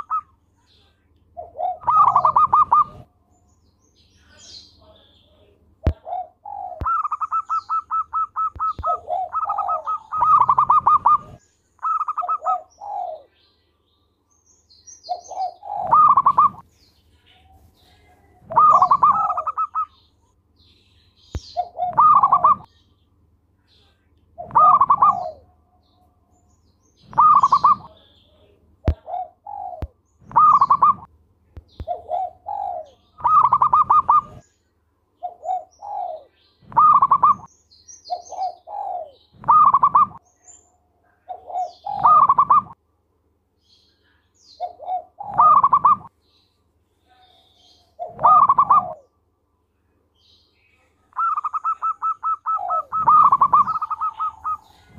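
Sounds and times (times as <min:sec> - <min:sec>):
dove cooing song: 0:00.0 - 0:00.4, 0:01.4 - 0:03.1, 0:05.9 - 0:13.4, 0:15.0 - 0:16.6, 0:17.3 - 0:20.1, 0:21.3 - 0:22.7, 0:24.4 - 0:25.6, 0:27.0 - 0:31.1, 0:31.8 - 0:34.5, 0:35.2 - 0:37.5, 0:38.1 - 0:40.3, 0:41.2 - 0:42.8, 0:44.6 - 0:46.2, 0:47.0 - 0:49.2, 0:50.8 - 0:54.9
small birds chirping: 0:00.0 - 0:42.8, 0:43.4 - 0:54.9.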